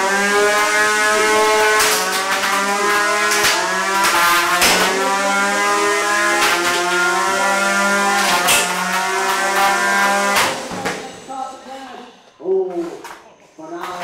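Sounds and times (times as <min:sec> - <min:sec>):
sharp hits of robots colliding: 0:03.3 - 0:05.2.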